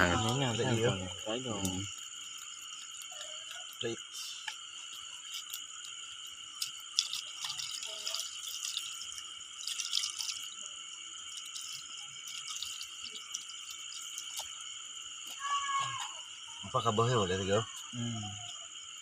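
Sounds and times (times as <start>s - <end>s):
night insects trilling: 0.0s - 19.0s
water splashing onto fish: 1.2s - 15.4s.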